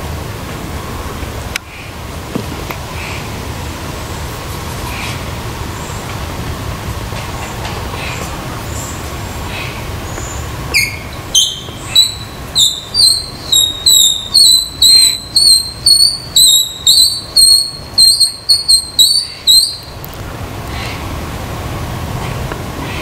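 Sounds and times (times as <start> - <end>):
sharp squeaky calls: 10.1 - 20.0.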